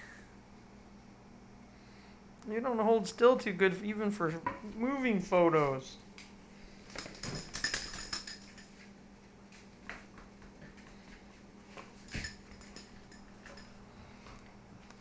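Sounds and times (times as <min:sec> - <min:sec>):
faint steady hum: 0:00.0 - 0:15.0
dog claws clicking on floor: 0:06.9 - 0:08.8, 0:11.8 - 0:13.8.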